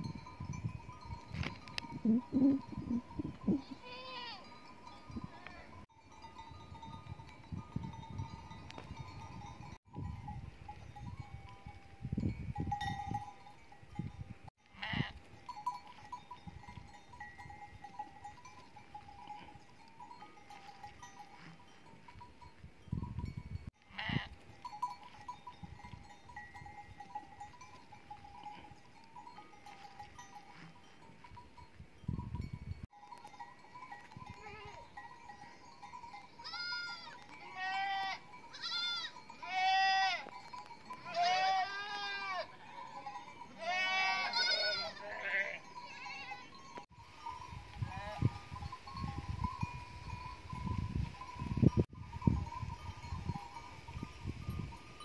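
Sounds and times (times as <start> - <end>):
sheep bells ringing: 0.0 - 55.0
sheep bleating: 14.8 - 15.2, 23.9 - 24.4, 36.4 - 40.3, 41.0 - 42.6, 43.6 - 46.5.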